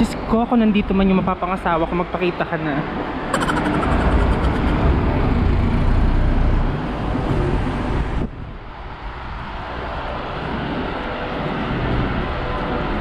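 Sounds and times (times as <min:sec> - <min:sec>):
steady street hum: 0:00.0 - 0:13.0
passing vehicles rumbling: 0:03.4 - 0:09.2.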